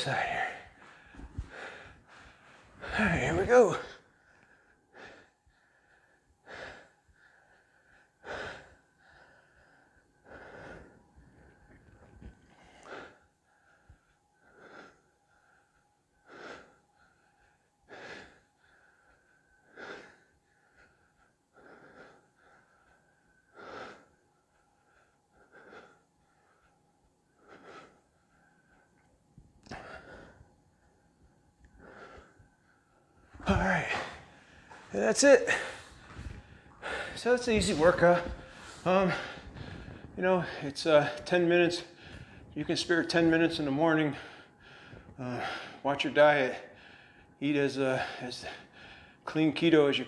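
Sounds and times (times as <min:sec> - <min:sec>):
man breathing heavily: 0:00.0 - 0:50.0.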